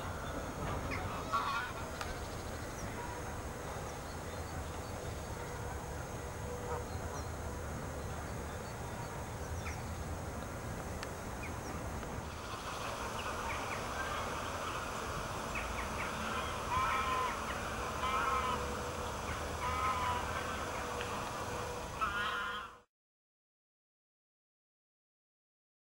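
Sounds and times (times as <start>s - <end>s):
bird calling: 0.0s - 10.0s, 11.4s - 22.8s
steady low rumble: 0.0s - 22.0s.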